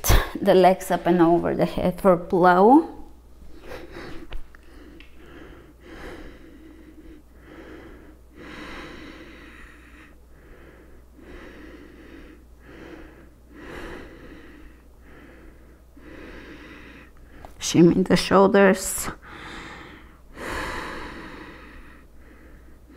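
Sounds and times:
woman breathing: 3.5 - 17.6, 19.0 - 22.9.

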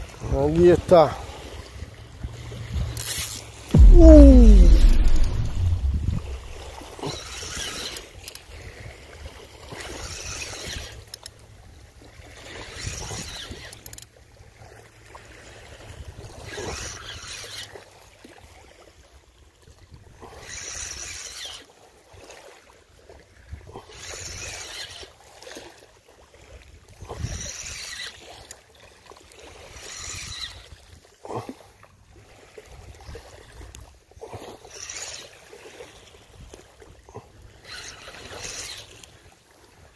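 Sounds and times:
low steady rumble: 3.8 - 6.6.

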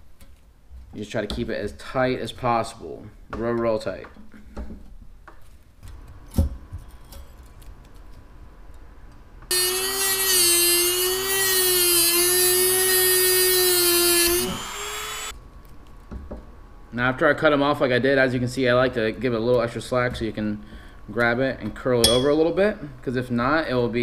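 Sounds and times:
rotary tool high whine: 9.5 - 15.4.

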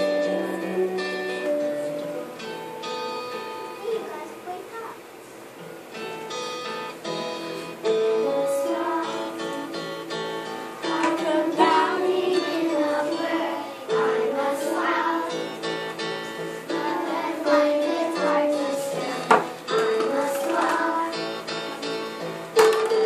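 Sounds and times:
instrumental accompaniment: 0.0 - 4.2, 5.5 - 23.0
children singing: 8.2 - 9.9, 10.8 - 22.2.

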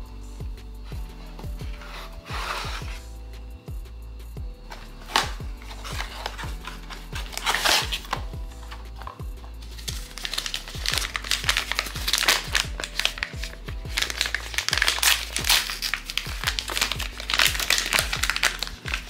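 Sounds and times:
background music with thumping beat: 0.0 - 19.0
plastic wrapper crinkling: 4.7 - 19.0.

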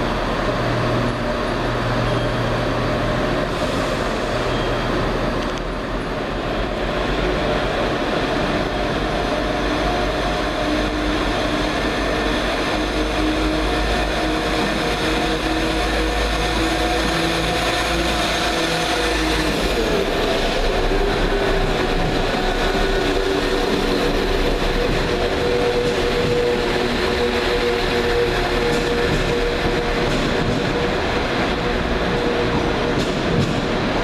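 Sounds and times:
diesel train engines running: 0.0 - 34.0
train wheels rolling: 6.8 - 34.0.

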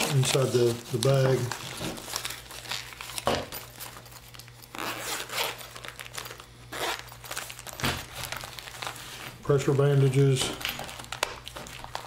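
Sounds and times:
plastic wrapping rustling: 0.0 - 12.0
pouch zipper unzipping: 4.7 - 5.8, 6.7 - 7.1.

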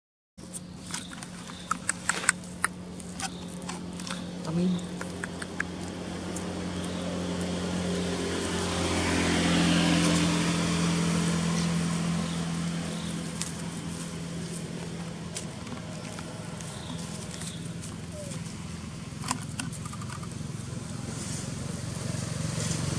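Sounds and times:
vehicle passing by: 1.6 - 22.9.

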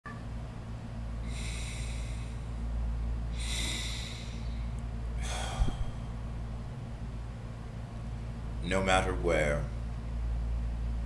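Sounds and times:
low hum: 0.1 - 11.0
man breathing deeply: 1.2 - 6.7.

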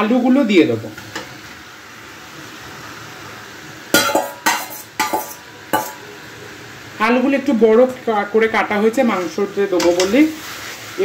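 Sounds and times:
food sizzling in pan: 0.0 - 11.0
metal clatters against pan: 4.0 - 6.0.

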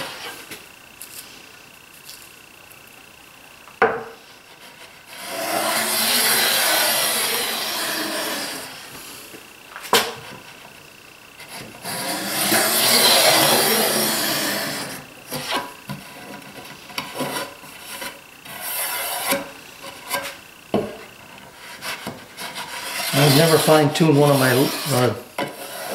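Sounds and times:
tool tapping on wood: 3.8 - 4.2, 20.7 - 21.0
plane shaving wood: 4.4 - 9.1, 11.4 - 20.4, 21.5 - 25.9.

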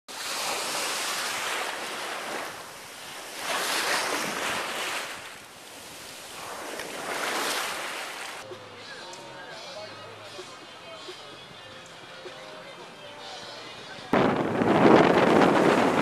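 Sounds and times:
rough surf waves breaking: 0.1 - 8.5, 14.1 - 16.0.

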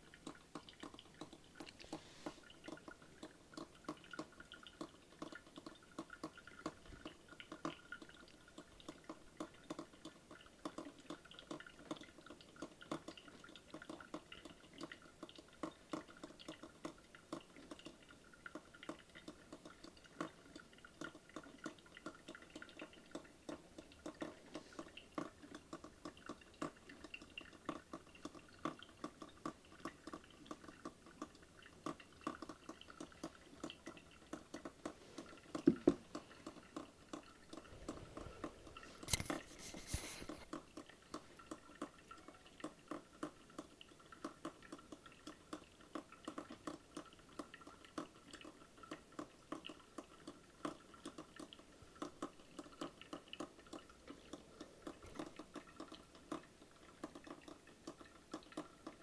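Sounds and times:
coffee maker popping and dripping: 0.0 - 59.0.

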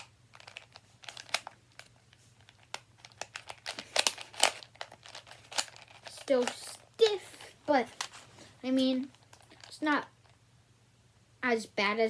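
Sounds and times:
plastic puzzle cube clicking: 2.5 - 7.1.

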